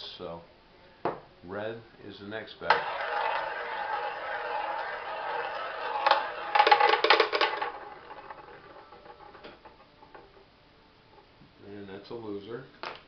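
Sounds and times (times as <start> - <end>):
roulette ball clattering in pockets: 2.7 - 10.5
roulette ball rolling whir: 2.7 - 11.3.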